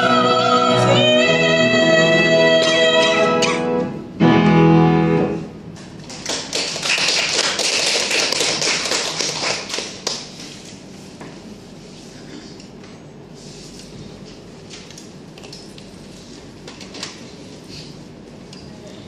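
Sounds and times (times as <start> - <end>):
soprano singing: 0.0 - 3.8
piano chord: 0.0 - 5.6
audience clapping: 5.9 - 10.5.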